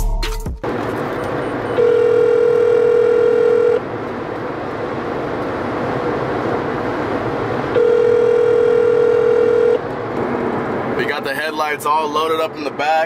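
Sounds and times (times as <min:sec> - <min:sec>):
car cabin road noise: 0:00.4 - 0:13.0
telephone ringback tone: 0:01.8 - 0:03.8, 0:07.8 - 0:09.8.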